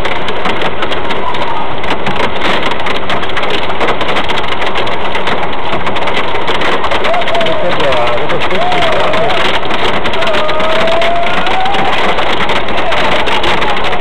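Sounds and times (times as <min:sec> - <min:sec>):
hail clattering on car roof: 0:00.0 - 0:14.0.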